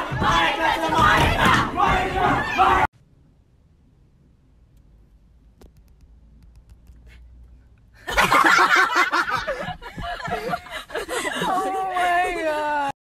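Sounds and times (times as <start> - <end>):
people laughing and shouting: 0.0 - 2.9, 8.1 - 13.0.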